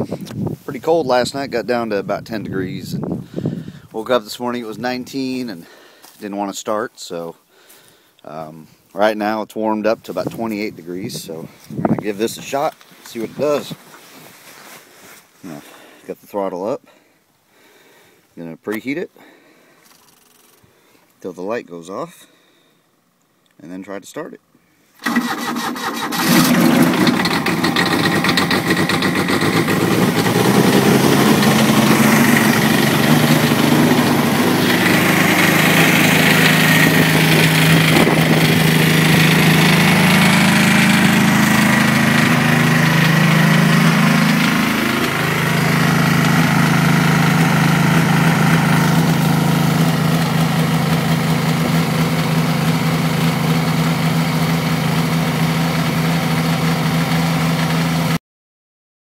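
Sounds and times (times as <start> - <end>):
diesel tractor engine running: 25.0 - 58.2.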